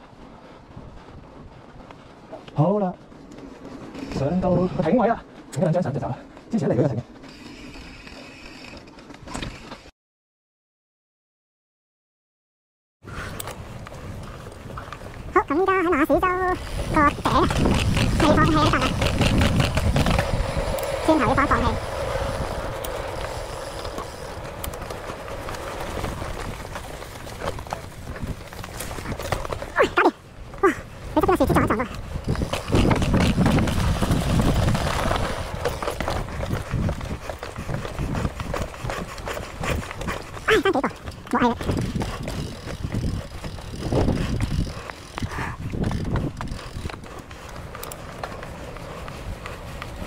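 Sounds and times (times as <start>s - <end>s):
tyre and wind rumble: 0.0s - 9.8s, 13.0s - 50.0s
bike frame rattling: 16.2s - 29.8s, 30.4s - 50.0s.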